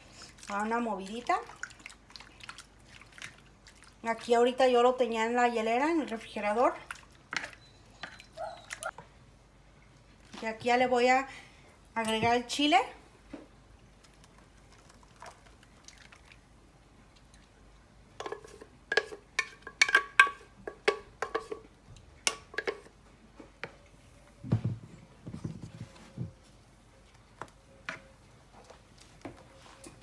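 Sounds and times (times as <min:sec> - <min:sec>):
sauce sloshing while stirred: 0:00.2 - 0:04.3, 0:14.0 - 0:16.5.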